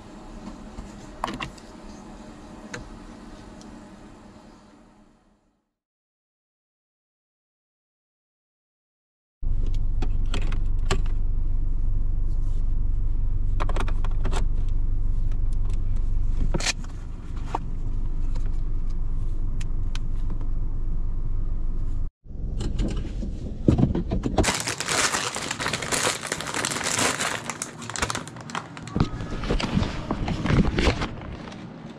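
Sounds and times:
low rumble inside car cabin: 9.4s - 31.3s
plastic packaging crinkling: 24.4s - 31.7s.

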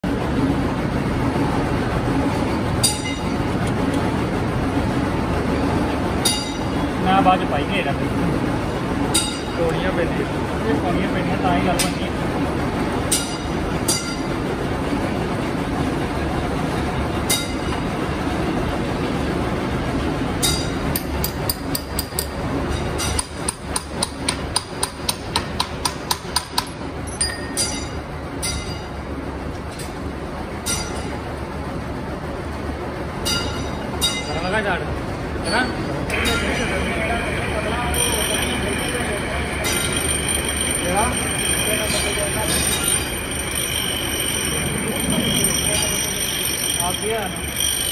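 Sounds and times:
grinding motor humming: 36.0s - 47.9s.

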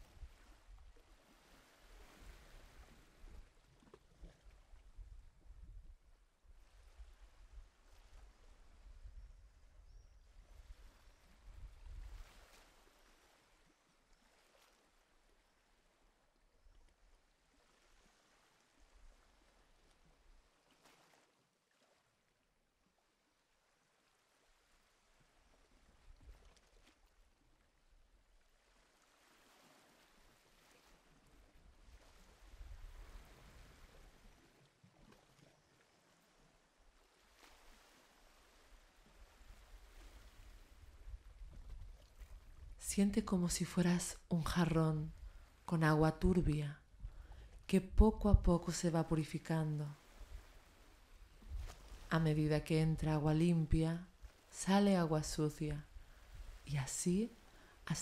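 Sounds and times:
faint background hiss: 42.6s - 58.0s.

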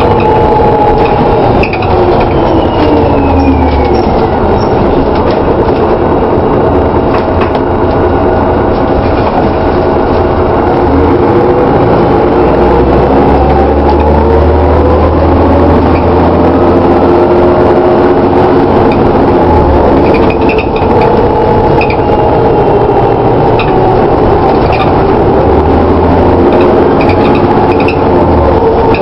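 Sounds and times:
bus engine whine: 0.0s - 29.0s
road rumble: 0.0s - 29.0s.

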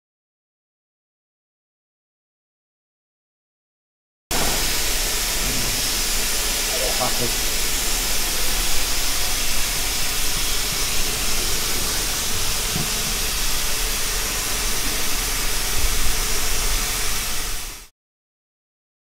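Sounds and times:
low hum: 4.3s - 17.9s
steady hiss: 4.3s - 17.9s.

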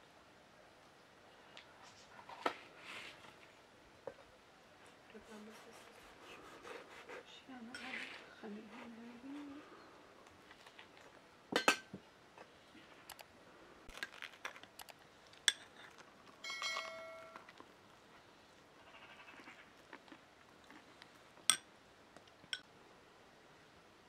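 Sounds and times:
clinks of tableware: 11.5s - 12.0s, 16.4s - 17.5s
brief ringing tone: 16.4s - 17.4s
spoon against glass bowl: 16.4s - 17.5s.

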